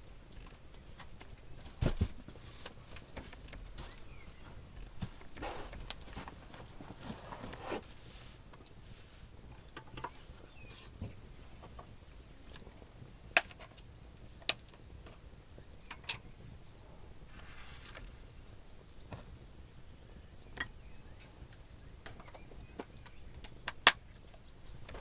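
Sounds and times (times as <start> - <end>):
campfire crackling: 0.0 - 25.0
sharp fire pops: 22.2 - 25.0.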